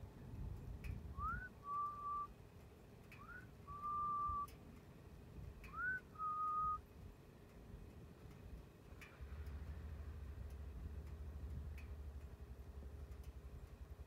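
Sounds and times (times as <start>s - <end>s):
person whistling: 1.2s - 2.3s, 3.2s - 4.5s, 5.7s - 6.8s.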